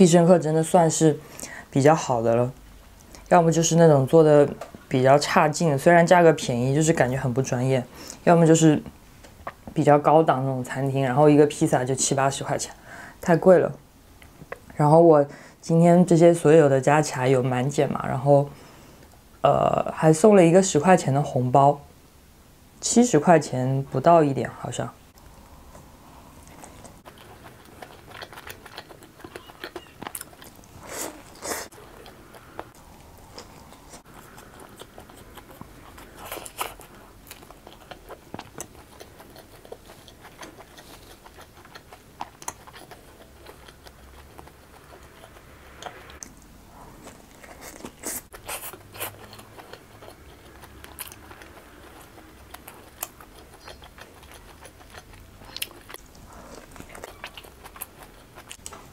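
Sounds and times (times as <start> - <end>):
wet chewing: 25.2 - 58.9.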